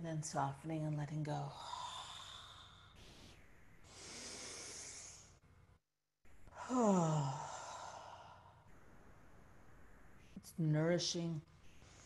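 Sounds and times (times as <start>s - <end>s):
woman breathing into microphone: 3.9s - 5.4s
woman sighing: 6.5s - 8.4s.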